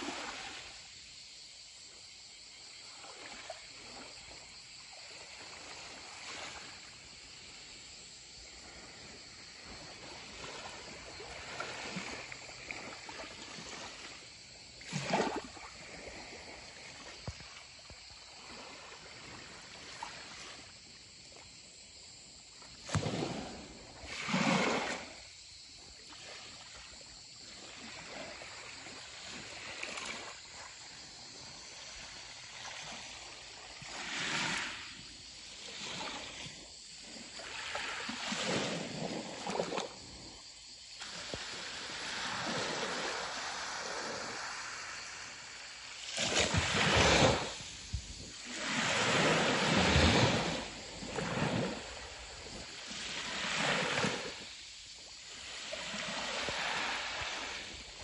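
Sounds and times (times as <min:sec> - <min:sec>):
small waves lapping on shore: 0:00.0 - 0:58.0.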